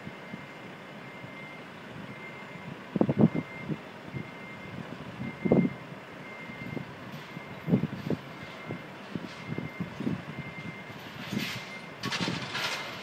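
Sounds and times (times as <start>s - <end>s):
reversing alarm beeping: 0.0s - 12.7s
heavy bangs: 12.0s - 13.0s.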